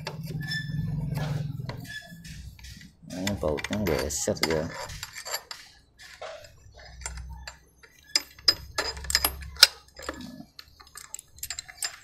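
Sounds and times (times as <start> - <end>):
metal tool clicks and clinks: 3.2 - 5.7, 6.9 - 12.0.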